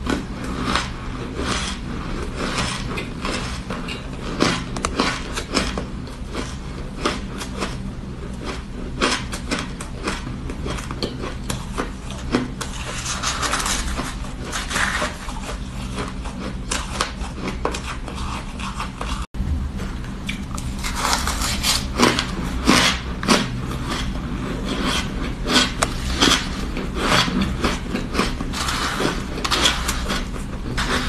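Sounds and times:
plastic spoon scraping: 0:00.0 - 0:06.6, 0:10.7 - 0:19.3, 0:20.5 - 0:31.0
steady low hum: 0:00.0 - 0:31.0
shaved ice crunching: 0:20.6 - 0:31.0.

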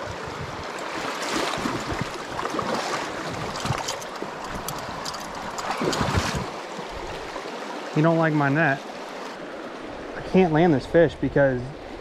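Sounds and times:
stream rushing over riffle: 0:00.0 - 0:12.0.

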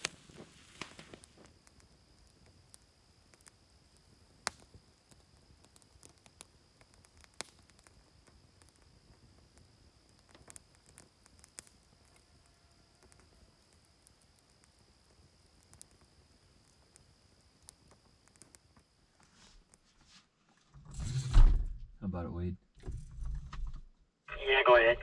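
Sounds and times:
faint high-pitched whine: 0:24.3 - 0:25.0.

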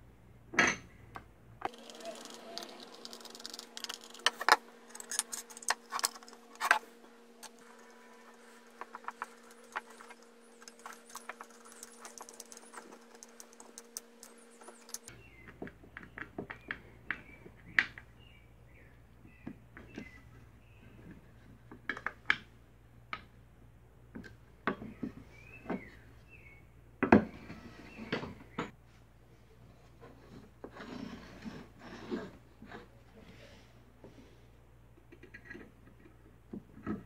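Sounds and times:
screwdriver clicking and scraping: 0:01.6 - 0:06.8, 0:07.4 - 0:15.1.

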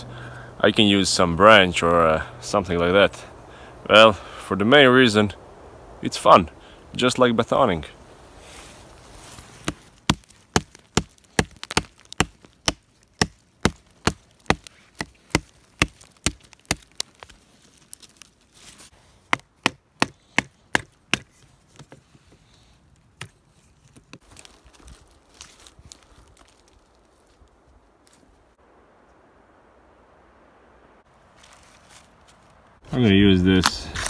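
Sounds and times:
knife chopping wood: 0:09.6 - 0:17.2, 0:19.3 - 0:22.0.

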